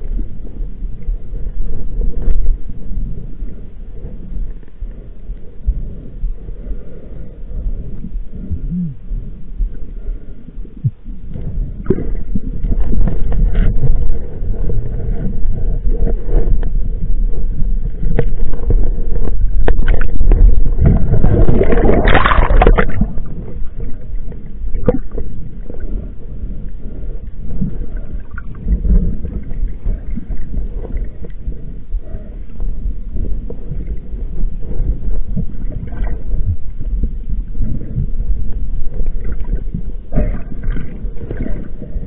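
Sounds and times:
boat engine rumble: 0.0 - 42.0
wind buffeting microphone: 11.6 - 26.2.

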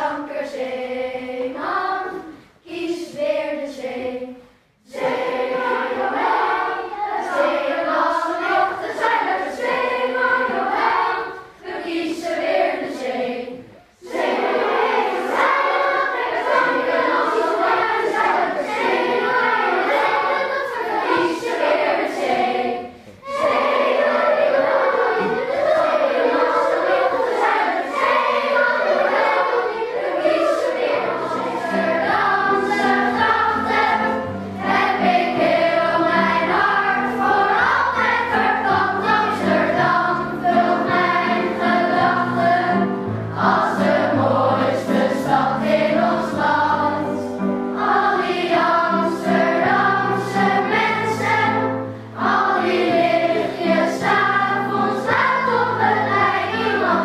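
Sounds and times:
children's choir singing: 0.0 - 57.0.

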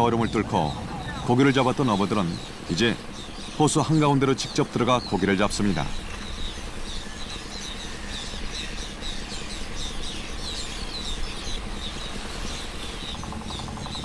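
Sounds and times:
low steady rumble: 0.0 - 12.1
terns calling: 0.0 - 14.0.

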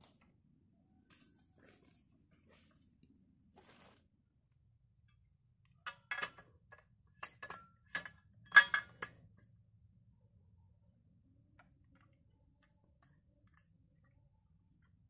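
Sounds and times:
sharp metallic clicks and knocks: 5.9 - 9.3.

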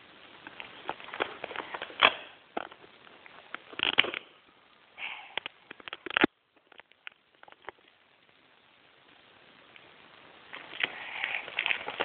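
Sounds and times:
tape and cardboard crackling: 0.4 - 4.3, 10.5 - 12.0.

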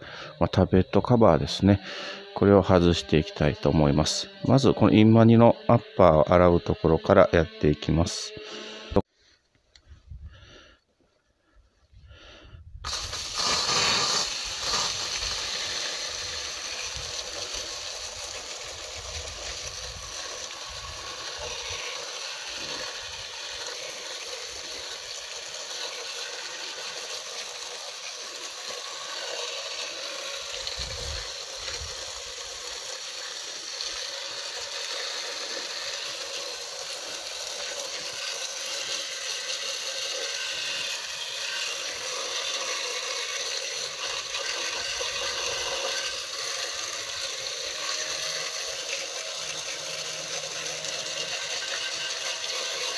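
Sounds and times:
hose nozzle spraying water: 12.8 - 52.9.

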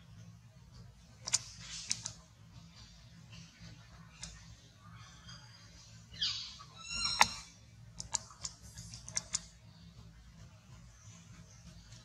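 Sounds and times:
baby monkey squealing: 6.1 - 7.6.

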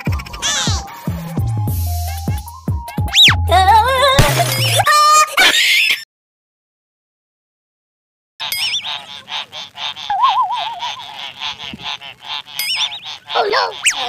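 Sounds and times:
goose-like honking squawks: 8.4 - 14.0.

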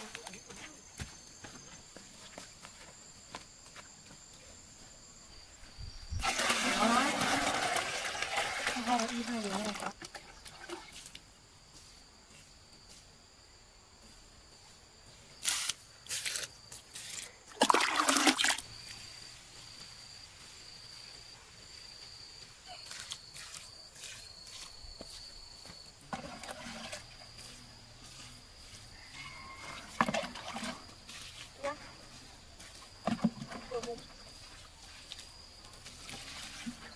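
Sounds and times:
water splashing onto soil: 6.2 - 10.9, 17.5 - 18.6.

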